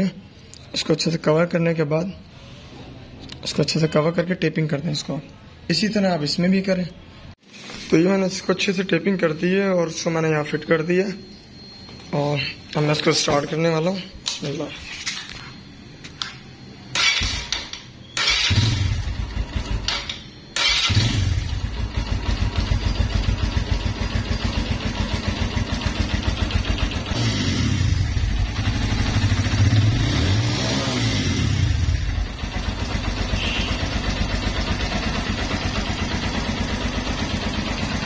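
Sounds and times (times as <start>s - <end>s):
motorcycle engine revving: 16.9s - 38.0s
motorcycle engine starting: 16.9s - 38.0s.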